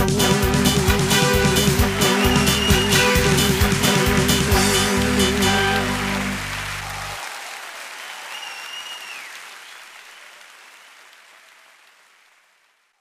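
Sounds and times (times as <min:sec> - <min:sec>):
hymn final chord: 0:00.0 - 0:06.9
applause and crowd noise: 0:00.0 - 0:13.0.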